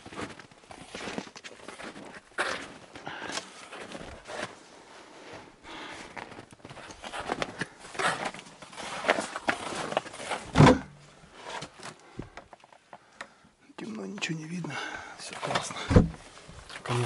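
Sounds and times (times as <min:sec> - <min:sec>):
plastic tarp rustling: 0:06.3 - 0:10.7
heavy thump: 0:15.9 - 0:16.2.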